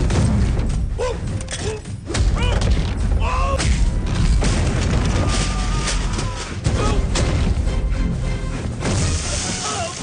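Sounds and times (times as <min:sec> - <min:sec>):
thuds and booms: 0:02.2 - 0:05.7.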